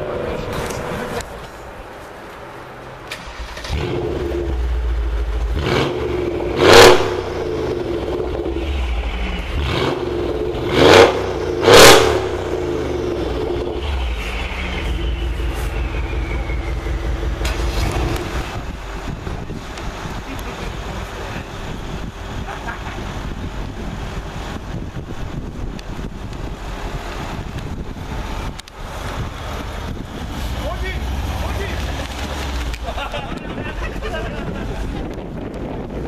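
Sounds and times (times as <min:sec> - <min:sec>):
car engine idling and revving: 0:00.0 - 0:36.0.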